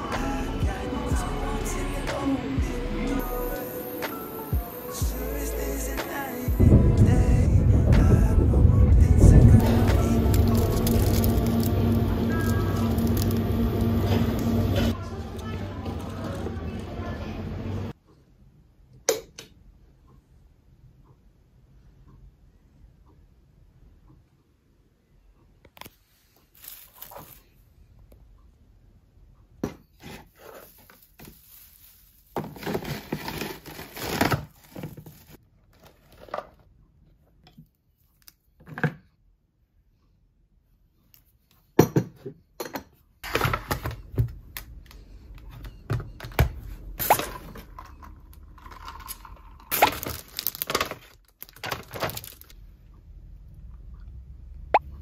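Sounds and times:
rustling of tinsel: 9.7s - 14.0s, 26.2s - 27.6s, 30.3s - 35.4s.

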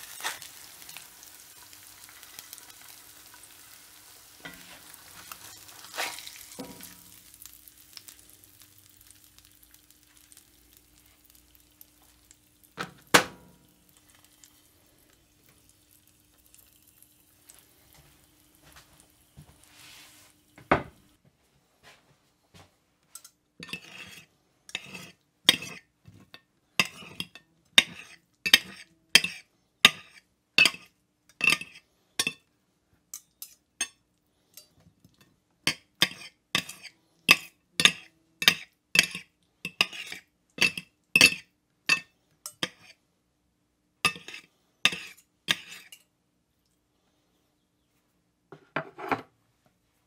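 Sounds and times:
knife and fork scraping a plate: 4.4s - 7.0s, 23.1s - 32.4s, 35.7s - 43.0s, 44.1s - 46.0s, 48.8s - 49.3s.

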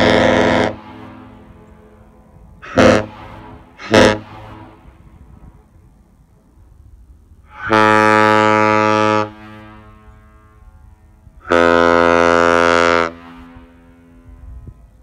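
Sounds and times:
ship horn blasts: 0.0s - 15.0s.

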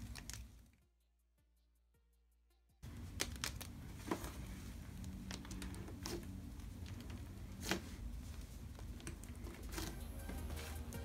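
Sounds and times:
slime crinkling and squishing: 0.0s - 0.7s.

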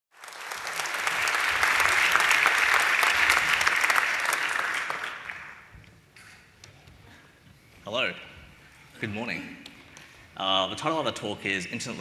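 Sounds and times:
audience applauding: 0.1s - 5.7s.

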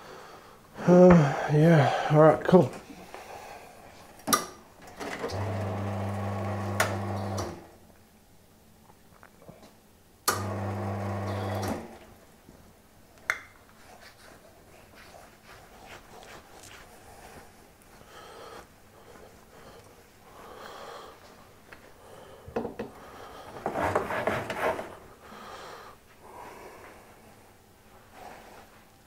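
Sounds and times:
coffee grinder grinding: 5.2s - 7.5s.

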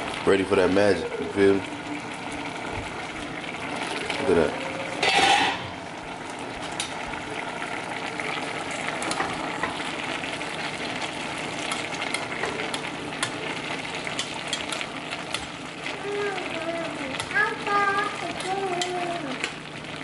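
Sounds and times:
food sizzling in a pot: 0.0s - 20.0s
metal spatula scraping a pot: 4.9s - 5.7s.

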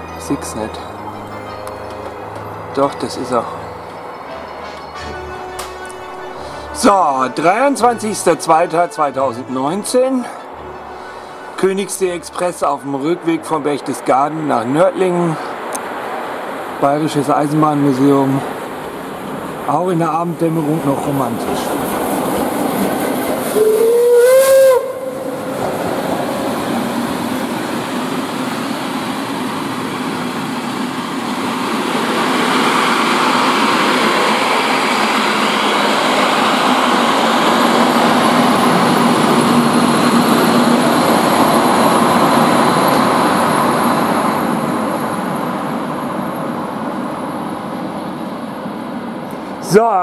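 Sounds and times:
train wheels rushing on rails: 0.0s - 50.0s
steam whistle blast: 4.3s - 7.4s, 10.6s - 11.7s, 23.5s - 25.6s.

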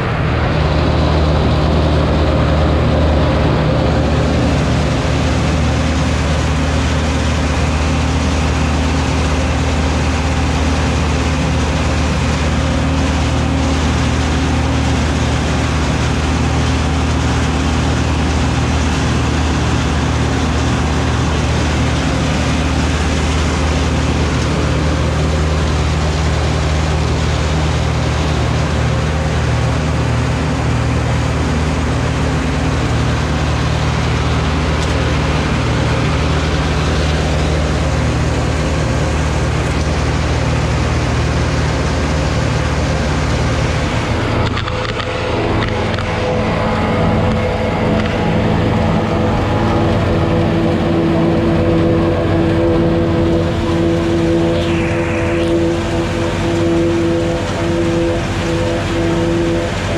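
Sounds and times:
tractor diesel engine running: 0.0s - 59.9s.

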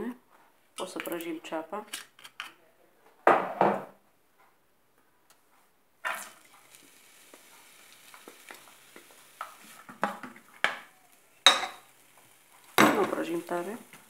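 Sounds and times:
onion sizzling in oil: 6.0s - 14.0s.

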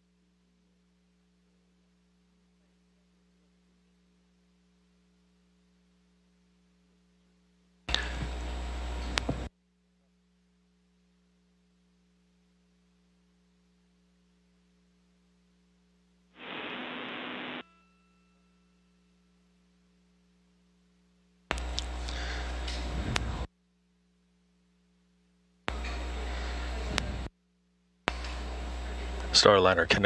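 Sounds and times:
low electrical hum: 0.0s - 30.0s
bursts of radio static: 16.4s - 17.6s.

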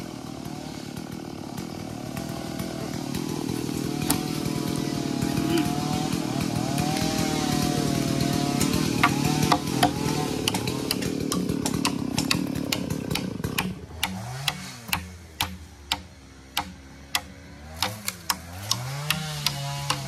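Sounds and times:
chainsaw running: 0.0s - 20.0s
hammer tapping on log: 8.6s - 20.0s.

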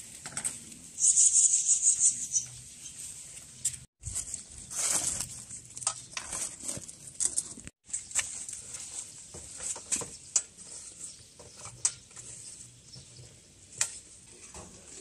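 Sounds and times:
leaves rustling: 0.0s - 11.2s.

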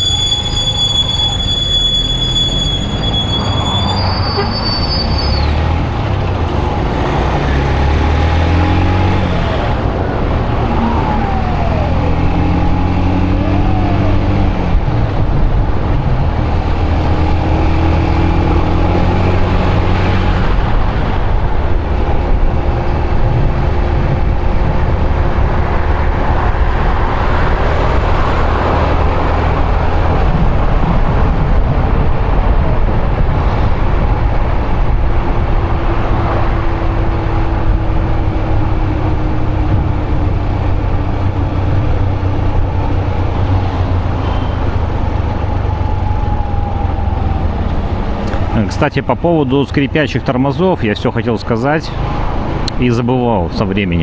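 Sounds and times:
high squeal: 0.0s - 5.7s, 44.0s - 48.1s
wind and road noise: 0.0s - 54.0s
motorcycle engine accelerating: 5.5s - 49.2s.

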